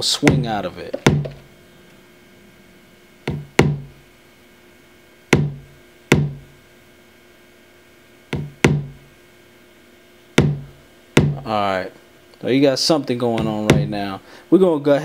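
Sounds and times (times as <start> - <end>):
kick drum loop: 0.0 - 1.5, 3.2 - 4.0, 5.3 - 6.6, 8.3 - 9.1, 10.4 - 11.6, 13.3 - 14.1.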